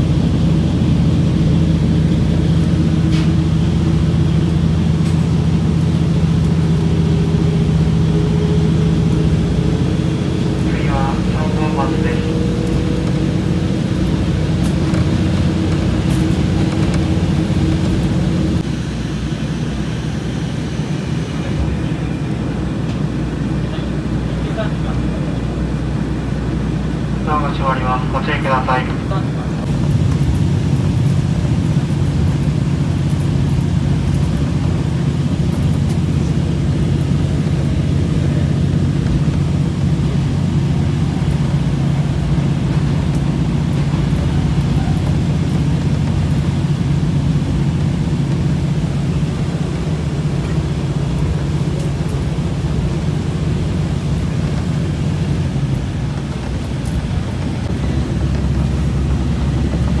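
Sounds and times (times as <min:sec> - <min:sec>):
diesel engine drone: 0:00.0 - 1:00.0
train running noise: 0:00.0 - 1:00.0.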